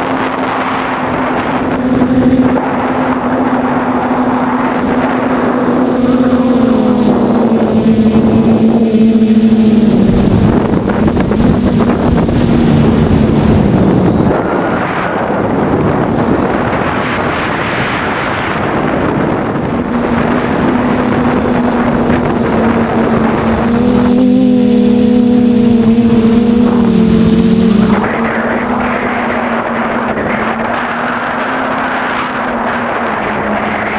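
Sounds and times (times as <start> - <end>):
drone motors humming: 0.0 - 33.9
wind rushing over microphone: 0.0 - 33.9.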